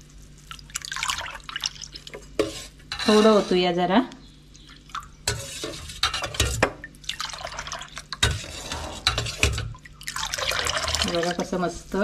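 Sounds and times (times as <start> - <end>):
liquid sloshing in a bowl: 4.5 - 11.6.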